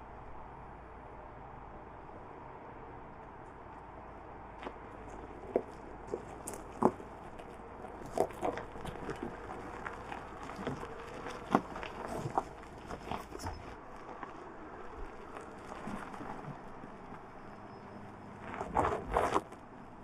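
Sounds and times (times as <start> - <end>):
tyres crunching over gravel: 3.1 - 20.0.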